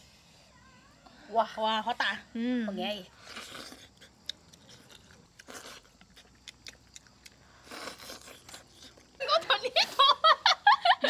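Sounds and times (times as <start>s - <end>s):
people chewing: 3.1s - 10.0s
slurping: 3.2s - 9.2s.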